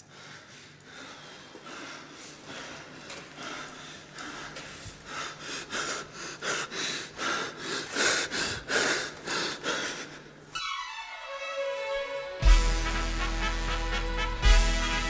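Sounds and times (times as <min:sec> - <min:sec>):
man panting heavily: 0:00.0 - 0:10.5.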